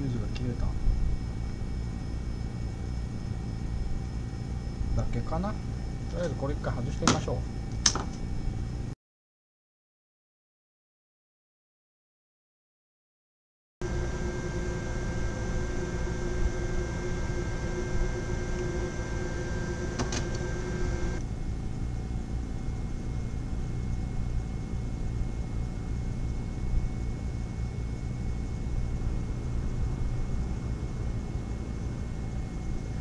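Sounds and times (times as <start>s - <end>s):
electrical hum and hiss: 0.0s - 9.0s, 13.8s - 33.0s
whining tones: 13.8s - 21.2s.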